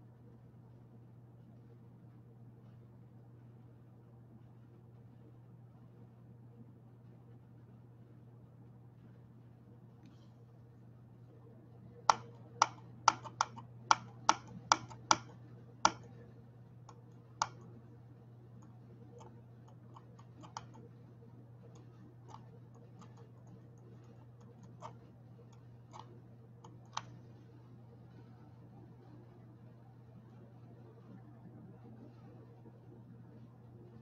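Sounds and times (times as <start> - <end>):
sharp clicks: 12.1 - 16.1, 16.8 - 17.7, 18.6 - 20.9, 21.7 - 27.2.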